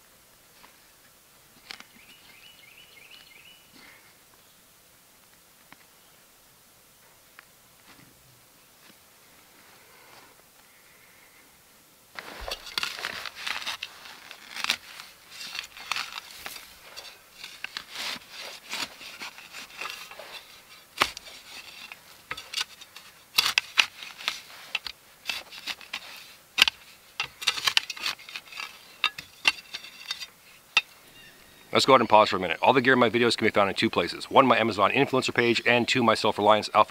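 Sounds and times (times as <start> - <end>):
shovel blade knocking in dirt: 12.2 - 31.0
shovel scraping gritty soil: 12.2 - 35.5.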